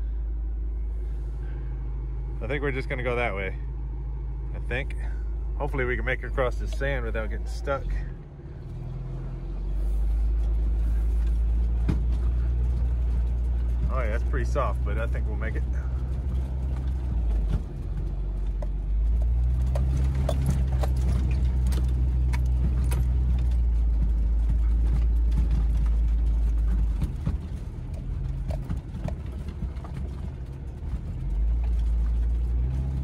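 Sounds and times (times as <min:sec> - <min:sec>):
car engine pulling through sand: 0:04.6 - 0:33.0
knocks and rattles: 0:10.3 - 0:33.0.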